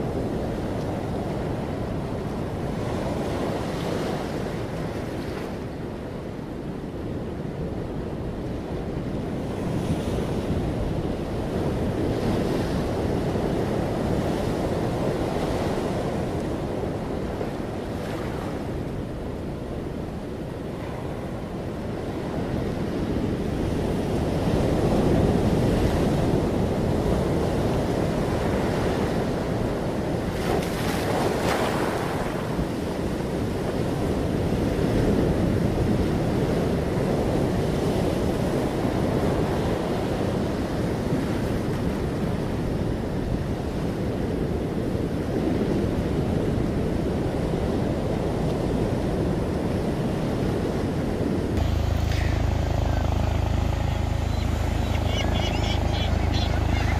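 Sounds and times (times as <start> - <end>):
surf breaking over rocks: 24.6 - 33.6.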